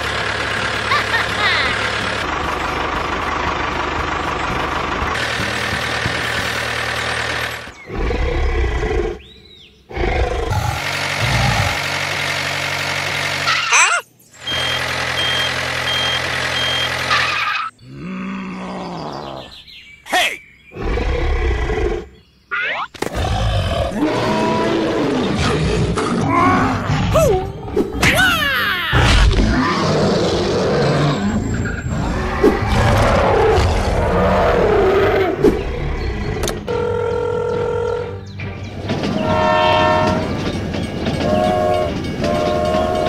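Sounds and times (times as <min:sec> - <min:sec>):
tractor engine running: 0:00.0 - 0:08.5, 0:10.5 - 0:17.7, 0:31.5 - 0:43.0
dinosaur roars and growls: 0:07.8 - 0:11.8, 0:17.7 - 0:19.6, 0:20.7 - 0:22.2, 0:23.0 - 0:28.0, 0:28.9 - 0:36.6.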